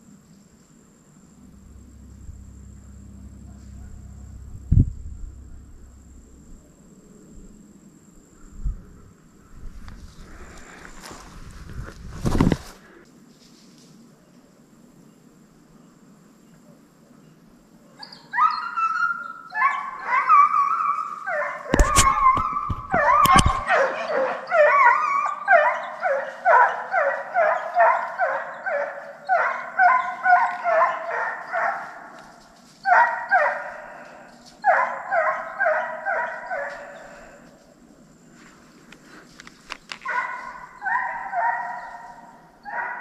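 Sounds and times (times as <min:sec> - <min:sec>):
dogs yelping and barking: 0:18.0 - 0:32.1, 0:32.8 - 0:37.4, 0:40.0 - 0:43.0
dogs whining: 0:20.1 - 0:26.7.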